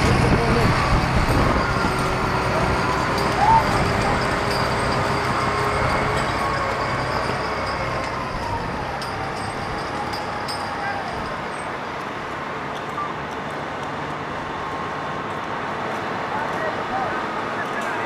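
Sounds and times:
wheel loader engine running: 0.0s - 12.6s.

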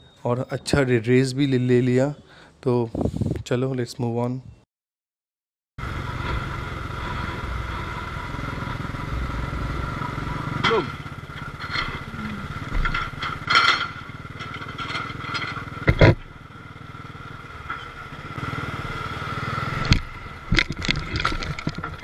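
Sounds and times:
motorcycle engine running: 5.8s - 22.0s
motorcycle jolting knocks: 10.5s - 16.4s, 19.8s - 22.0s.

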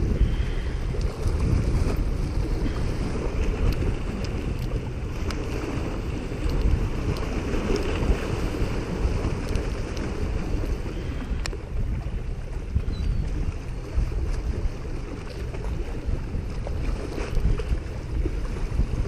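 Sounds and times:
small waves washing against rocks: 0.0s - 19.0s
wind rumbling on microphone: 0.0s - 19.0s
faint clicks: 3.4s - 5.5s, 6.4s - 8.0s, 9.4s - 10.1s, 11.4s - 11.6s.

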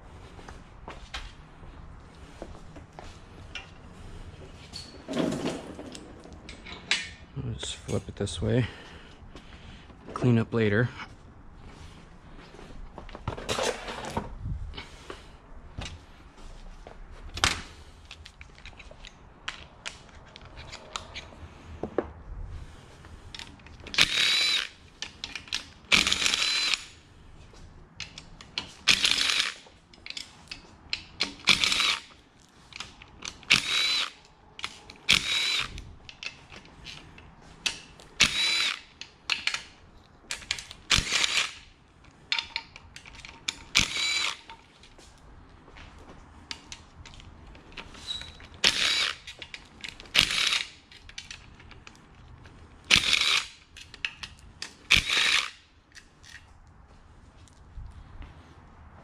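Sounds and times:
cordless power driver whirring: 23.4s - 24.8s, 25.9s - 26.9s, 28.9s - 29.6s, 31.4s - 32.1s, 33.3s - 35.8s, 38.2s - 39.0s, 40.9s - 41.6s, 43.7s - 44.5s, 48.6s - 49.4s, 50.1s - 50.8s, 52.9s - 53.6s, 54.9s - 55.6s.

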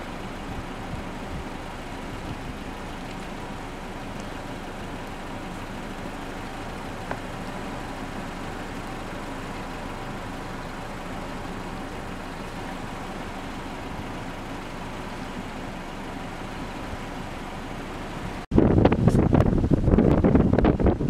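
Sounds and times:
faint constant tones: 0.0s - 18.5s
vehicle engine humming: 0.0s - 21.0s
wind buffeting microphone: 0.2s - 9.0s, 18.3s - 21.0s.

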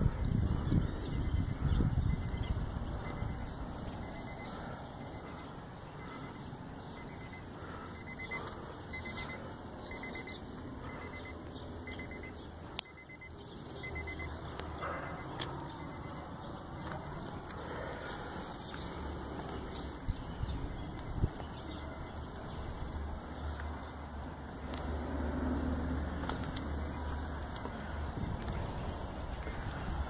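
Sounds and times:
wind rumble on microphone: 0.0s - 4.7s, 19.8s - 23.2s, 25.3s - 30.0s
faint high beeps: 1.0s - 16.5s.

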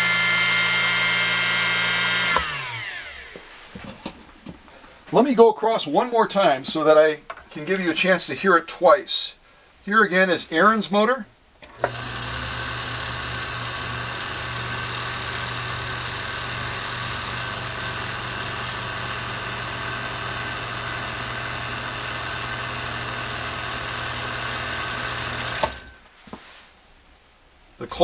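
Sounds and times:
sewing machine running: 0.0s - 3.2s, 11.7s - 25.9s.

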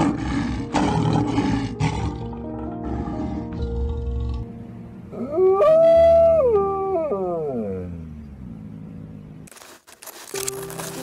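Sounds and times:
soft background music: 0.0s - 6.8s, 10.4s - 11.0s
animal howl: 5.1s - 8.1s.

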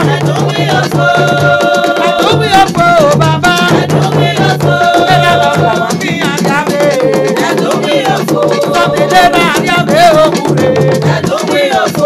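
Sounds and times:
drums: 0.0s - 11.6s
person singing: 0.0s - 12.0s
shaker-like rattle: 0.0s - 12.0s.

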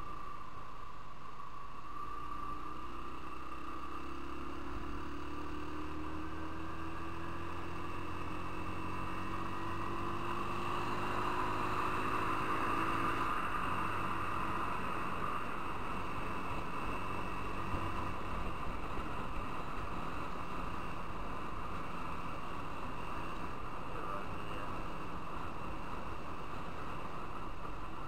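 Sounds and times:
wind and road noise: 0.0s - 28.0s
motorcycle engine accelerating: 1.8s - 28.0s.

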